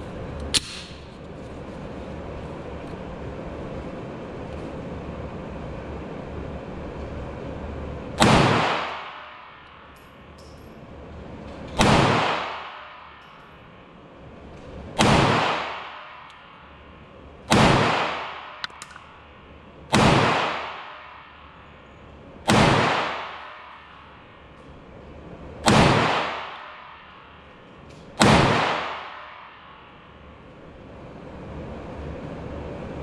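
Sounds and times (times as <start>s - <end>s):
gunshots echoing indoors: 8.2s - 10.0s, 11.5s - 21.6s, 22.4s - 30.4s.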